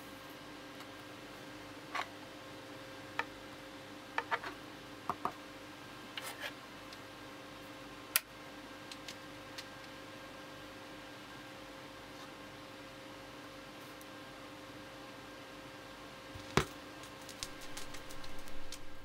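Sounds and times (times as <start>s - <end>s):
steady low hum: 0.0s - 19.0s
vinyl record handling clicks: 16.4s - 19.0s.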